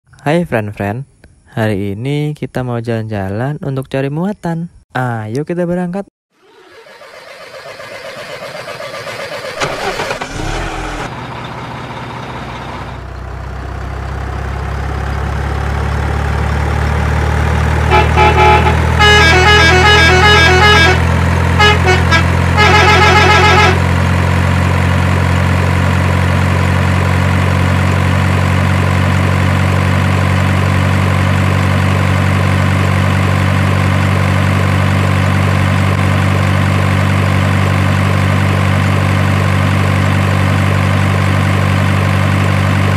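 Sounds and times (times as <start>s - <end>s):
truck horn honking: 6.4s - 11.1s, 17.8s - 24.2s
truck engine idling: 6.4s - 42.9s.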